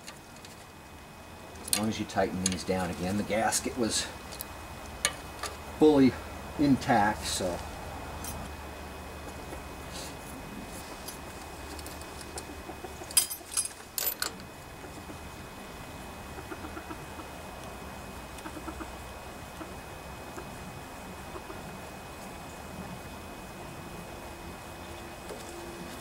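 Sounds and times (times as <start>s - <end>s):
faint chicken clucking: 12.2s - 13.2s, 14.7s - 23.8s.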